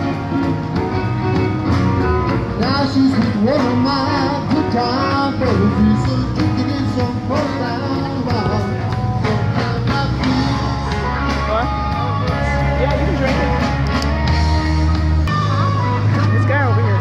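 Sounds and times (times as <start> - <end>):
band with steady beat: 0.0 - 17.0
person singing: 2.6 - 11.2.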